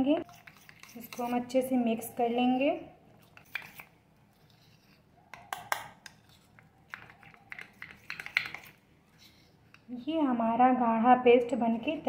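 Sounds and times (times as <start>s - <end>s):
metal spoon scraping steel bowl: 0.2s - 5.0s.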